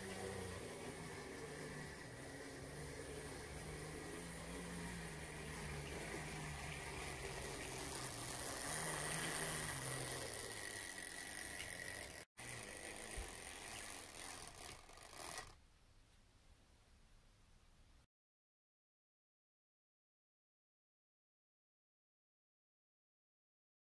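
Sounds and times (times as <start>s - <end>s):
wind-up motor whirring: 0.0s - 15.6s.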